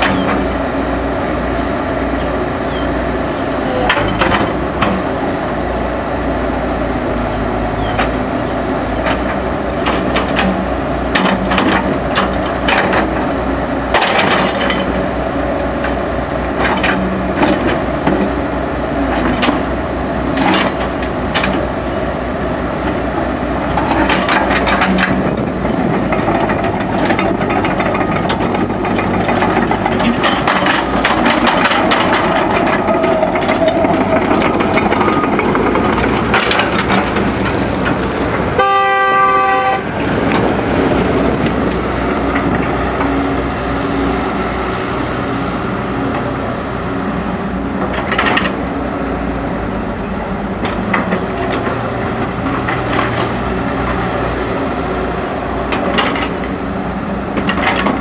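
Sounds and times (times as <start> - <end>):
excavator diesel engine running: 0.0 - 58.0
metallic clanks from excavator arm: 3.6 - 5.0, 23.7 - 38.0, 57.3 - 58.0.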